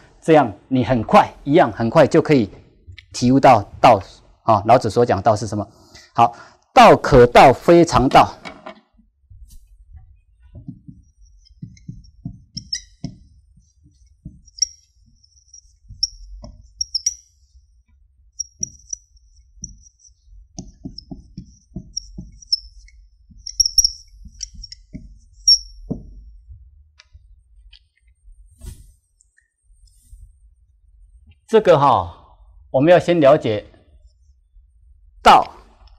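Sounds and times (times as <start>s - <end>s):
marker squeaking on whiteboard: 9.6s - 26.4s
marker tapping: 10.0s - 28.1s.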